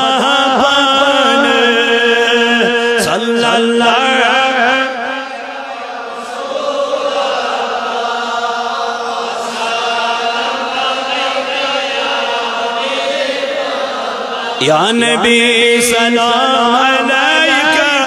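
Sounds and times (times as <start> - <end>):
chanted devotional singing: 0.0 - 18.0.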